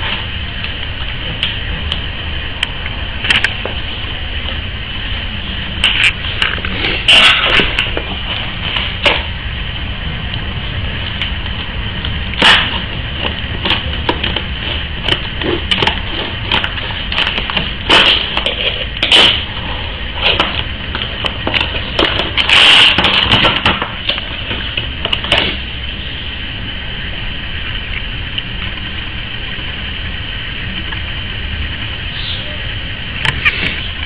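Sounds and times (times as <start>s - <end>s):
steady low hum: 0.0s - 34.0s
plastic packaging crackling: 12.3s - 25.6s.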